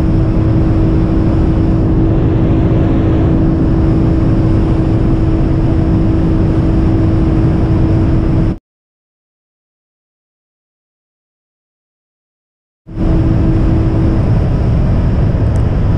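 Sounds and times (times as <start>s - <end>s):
car engine running: 0.0s - 8.6s, 12.9s - 15.9s
wind and road noise: 0.0s - 8.6s, 12.9s - 15.9s.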